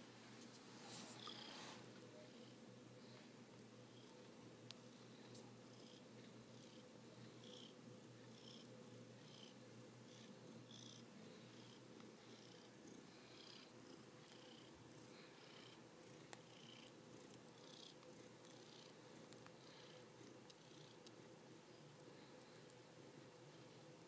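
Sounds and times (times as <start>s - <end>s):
cat purring: 0.9s - 2.6s, 5.7s - 22.7s.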